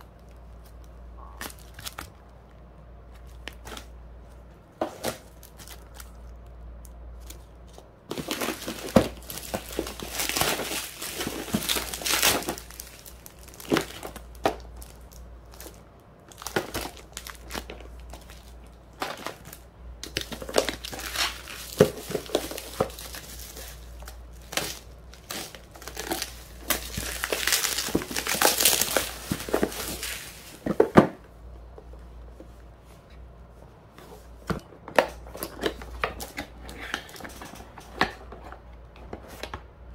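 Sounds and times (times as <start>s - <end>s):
plastic packaging crinkling: 0.0s - 2.3s, 3.1s - 30.9s.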